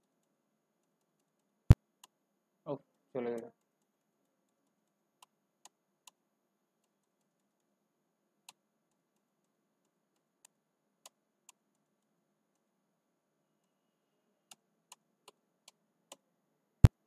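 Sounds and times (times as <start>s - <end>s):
computer keys clicking: 0.0s - 2.2s.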